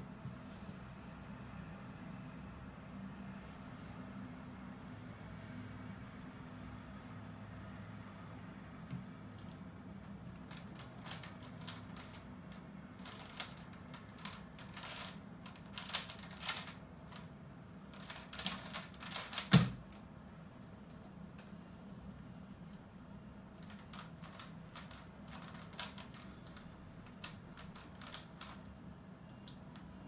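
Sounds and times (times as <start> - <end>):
puzzle cube clicking as turned: 10.4 - 17.3, 17.9 - 19.8, 23.6 - 28.6
cube thumping down: 18.0 - 19.8.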